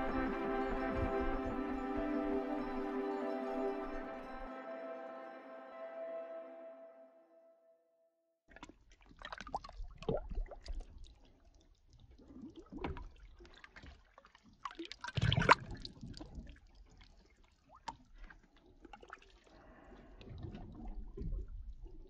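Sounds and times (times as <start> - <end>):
water splashing and sloshing: 8.5 - 22.0.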